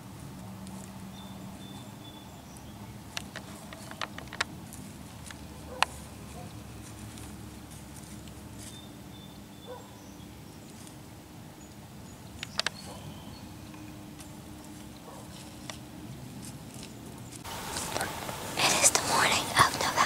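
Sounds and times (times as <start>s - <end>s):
deer footsteps in dry leaves: 0.0s - 19.3s
sharp clicks: 3.1s - 4.5s, 12.3s - 13.0s.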